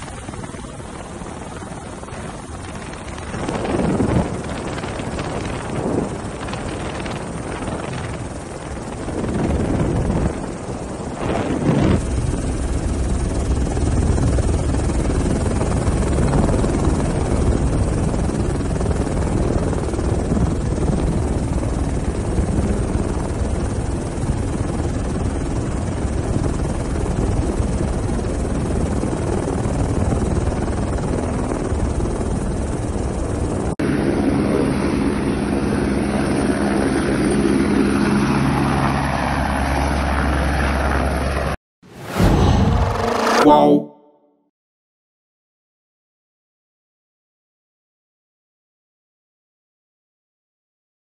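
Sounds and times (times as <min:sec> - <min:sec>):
helicopter rotor and engine drone: 0:00.0 - 0:43.8.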